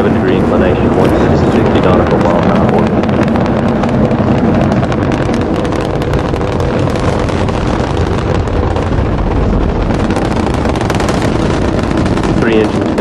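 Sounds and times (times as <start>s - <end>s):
rocket launch rumble with crackling: 0.0s - 13.0s.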